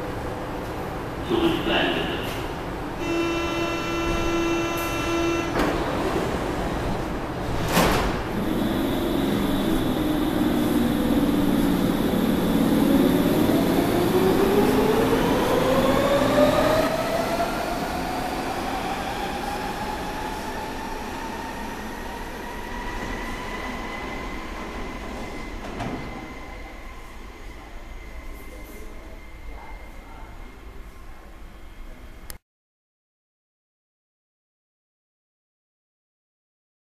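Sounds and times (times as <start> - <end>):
train drive whine rising: 8.3 - 17.1.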